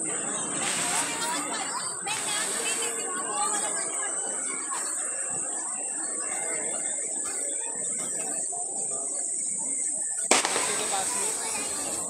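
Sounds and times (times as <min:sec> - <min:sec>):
crowd chatter: 0:00.0 - 0:12.0
crickets chirring: 0:09.2 - 0:12.0.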